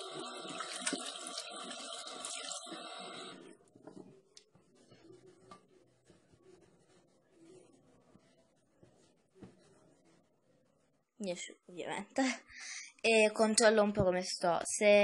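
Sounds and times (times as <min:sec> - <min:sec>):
faint knocks and rustles: 0:03.7 - 0:10.3.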